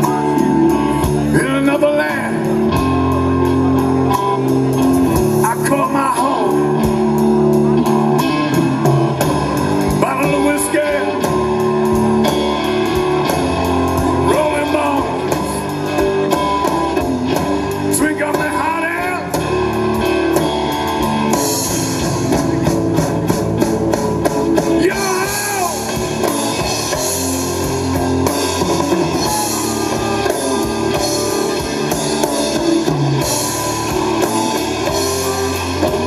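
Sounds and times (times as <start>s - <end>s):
live rock band playing: 0.0s - 36.0s
person singing: 24.8s - 26.0s.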